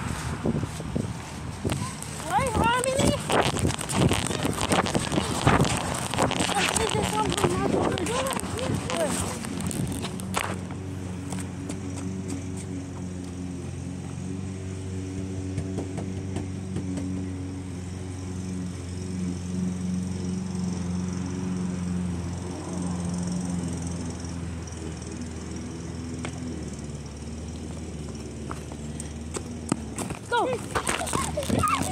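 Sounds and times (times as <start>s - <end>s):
motor droning: 0.0s - 31.9s.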